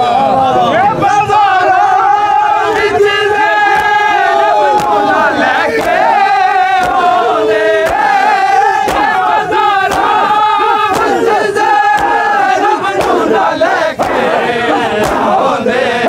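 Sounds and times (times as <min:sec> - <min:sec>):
crowd chanting a lament: 0:00.0 - 0:16.0
collective chest-beating slaps: 0:03.6 - 0:16.0.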